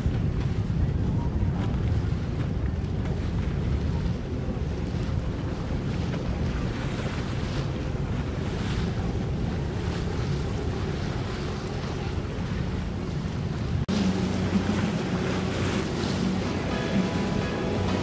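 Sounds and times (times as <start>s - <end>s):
wind buffeting microphone: 0.0s - 18.0s
low rumble: 11.1s - 18.0s.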